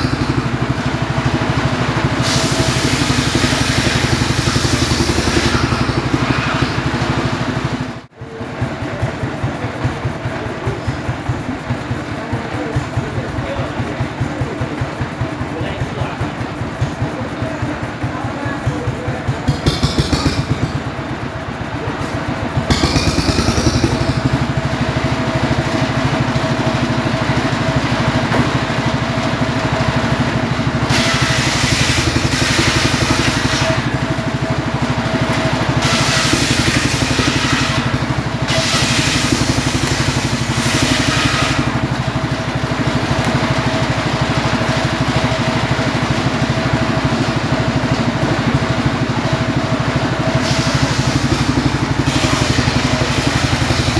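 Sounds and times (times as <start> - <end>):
engine running steadily: 0.0 - 53.9
saw blade cutting log: 2.1 - 7.9, 19.4 - 20.9, 22.7 - 24.5, 30.8 - 34.0, 35.3 - 41.9, 50.4 - 53.9.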